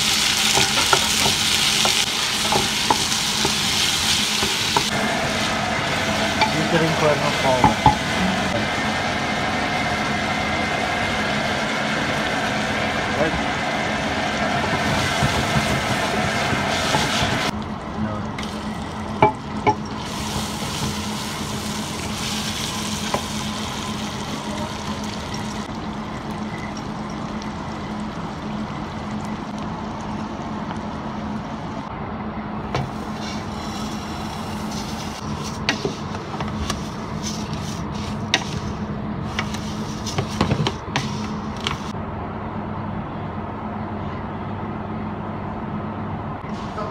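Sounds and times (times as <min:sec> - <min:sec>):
onions sizzling in oil: 0:00.0 - 0:10.1, 0:13.9 - 0:17.6, 0:18.4 - 0:30.2
wooden spoon knocking pot: 0:07.6 - 0:08.1, 0:19.2 - 0:19.9.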